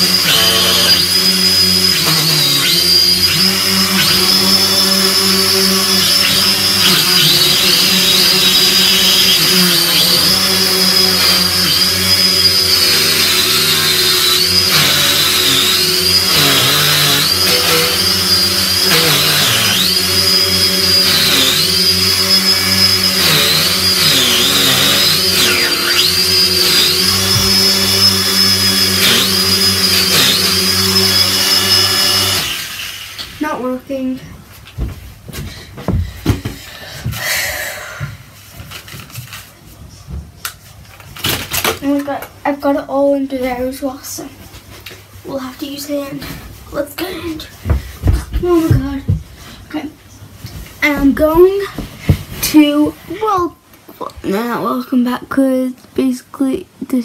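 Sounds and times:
drone propellers whining: 0.0s - 33.4s.

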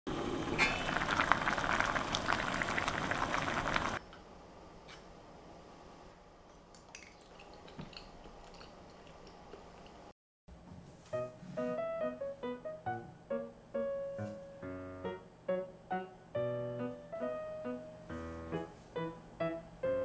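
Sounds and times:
liquid boiling in a pot: 0.1s - 4.0s.

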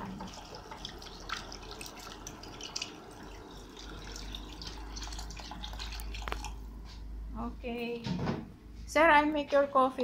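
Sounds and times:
water pouring into a pot: 0.0s - 6.6s.

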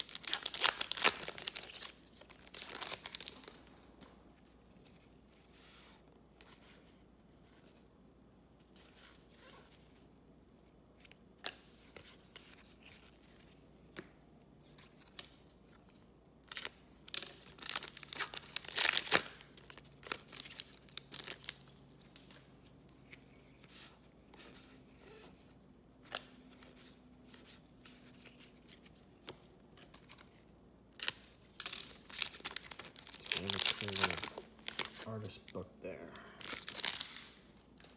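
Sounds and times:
card pack tearing open: 0.0s - 3.6s, 16.5s - 21.6s, 30.9s - 35.1s, 36.4s - 37.4s
card pack wrapper crinkling: 0.0s - 3.7s, 16.5s - 22.4s, 30.9s - 37.9s.

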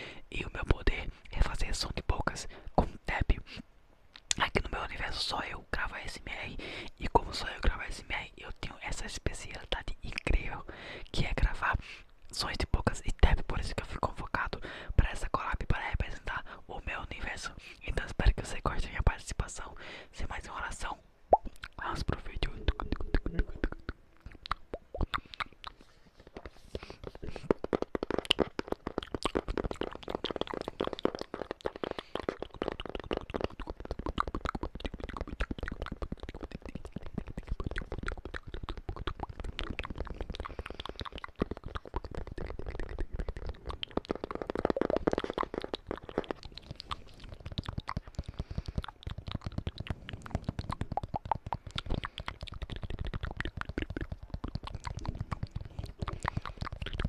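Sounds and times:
mouth clicks and smacks: 0.0s - 57.0s.

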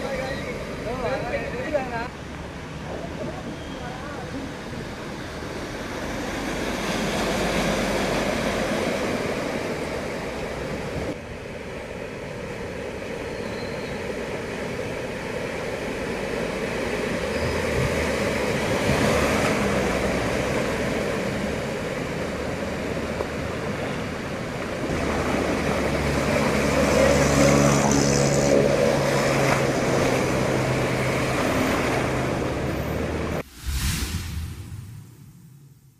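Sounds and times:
floodwater splashing and rushing: 18.0s - 34.6s.

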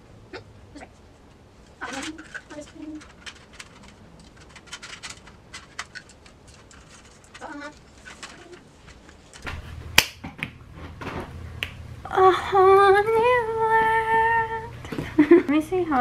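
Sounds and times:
plastic and metal parts clicking: 1.8s - 9.5s
finger snap: 10.0s - 10.2s, 11.6s - 11.8s.

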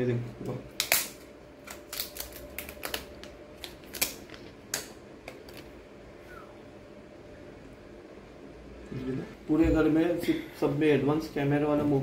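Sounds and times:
plastic film peeling off: 0.8s - 4.5s.

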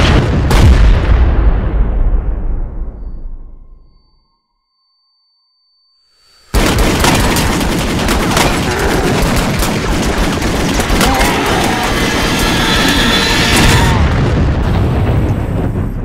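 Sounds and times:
heavy booms: 0.0s - 3.4s, 6.6s - 16.0s
rapid gunfire: 6.5s - 14.0s.

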